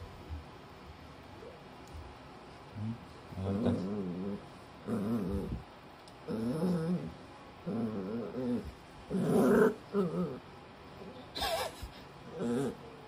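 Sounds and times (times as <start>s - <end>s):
puppy growling: 2.7s - 5.6s, 6.2s - 10.5s, 12.2s - 13.0s.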